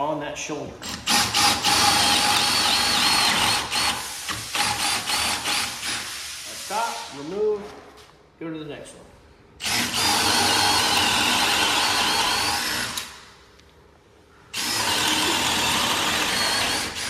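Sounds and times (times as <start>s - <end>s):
drill boring into wood: 0.8s - 6.1s, 9.6s - 13.2s, 14.5s - 17.0s.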